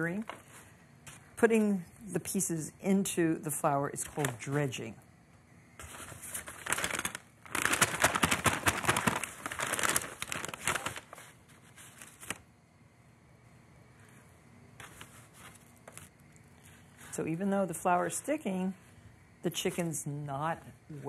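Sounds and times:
paper bag crinkling and rustling: 0:05.8 - 0:12.4.

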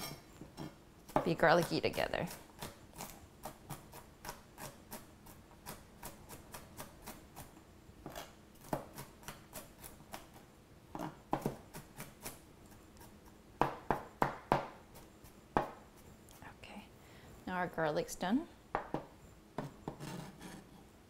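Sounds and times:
knife chopping on plastic board: 0:05.7 - 0:10.4, 0:11.0 - 0:12.4, 0:13.6 - 0:15.8.

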